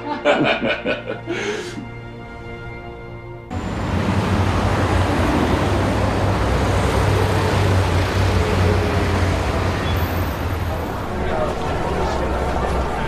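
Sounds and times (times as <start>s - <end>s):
traffic noise with low rumble: 3.5s - 13.0s.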